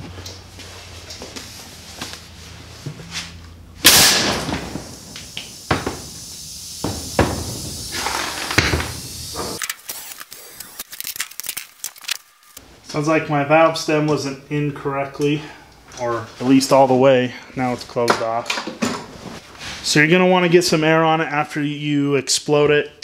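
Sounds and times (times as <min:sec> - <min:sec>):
air hissing: 0:03.3 - 0:10.9
loud blast of air: 0:03.8 - 0:09.6.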